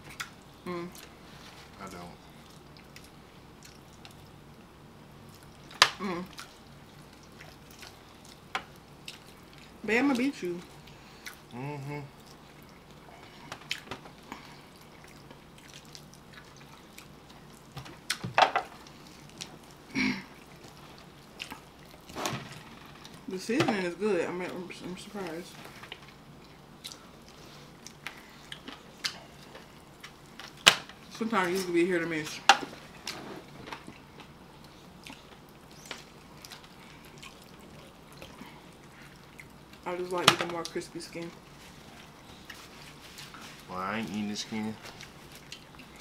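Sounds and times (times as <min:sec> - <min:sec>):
people chewing wetly: 0:00.0 - 0:23.3, 0:25.7 - 0:31.1, 0:32.7 - 0:39.9, 0:40.6 - 0:46.0.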